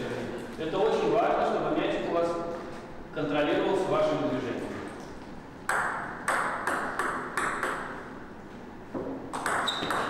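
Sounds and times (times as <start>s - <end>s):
balls bouncing on table: 5.6s - 8.2s, 8.9s - 10.0s
table tennis balls off bats: 5.6s - 8.2s, 8.9s - 10.0s.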